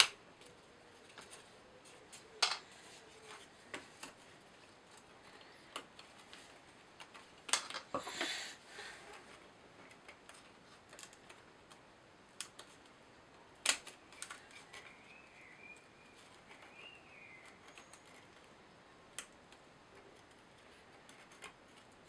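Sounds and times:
wooden parts tapping on a table: 2.4 - 2.7.

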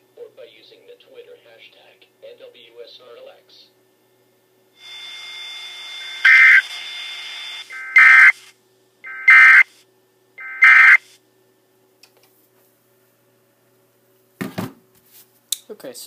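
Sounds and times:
steady hiss with faint high tones: 0.0 - 11.3
short data tone bursts: 4.8 - 8.4, 9.1 - 9.7, 10.4 - 11.1.

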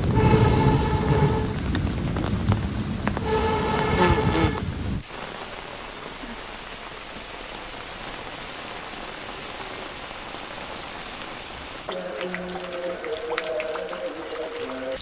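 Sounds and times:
steady hiss: 3.1 - 12.6.

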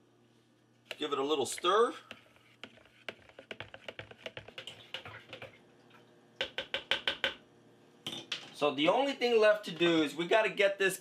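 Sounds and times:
spoon ticking against plastic pitcher: 2.6 - 5.4, 6.4 - 7.4.

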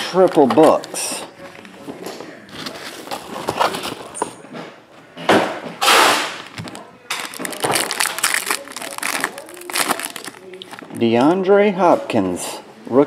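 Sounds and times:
foil wrapper tearing: 5.9 - 11.1
foil wrapper crinkling: 6.3 - 11.2.

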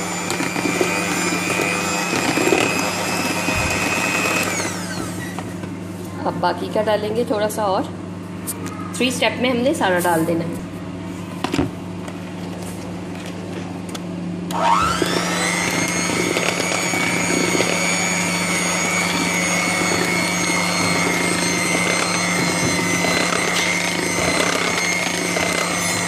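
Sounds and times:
electric hand mixer whining: 0.0 - 5.4, 14.5 - 26.0.

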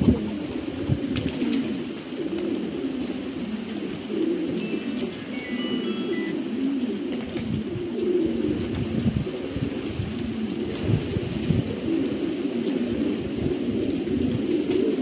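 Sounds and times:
pigeons cooing: 0.0 - 15.0
short high chirps: 4.7 - 6.4.

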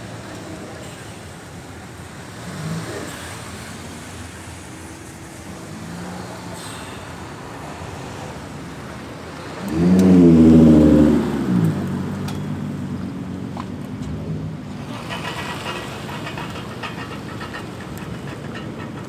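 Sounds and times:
cars driving past: 0.0 - 19.0
car engine revving: 9.4 - 12.3.

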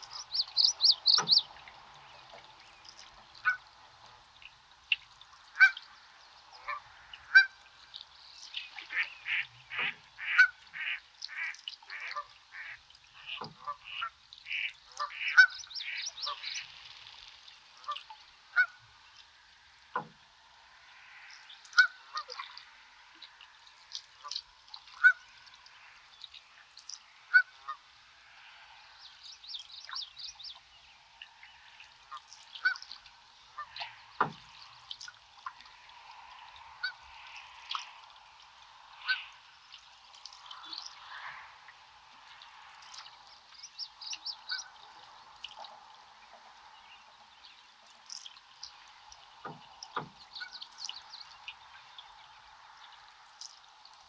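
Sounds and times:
birds calling: 0.0 - 3.6, 8.4 - 16.8, 28.7 - 38.1, 42.8 - 45.7, 46.7 - 53.6.

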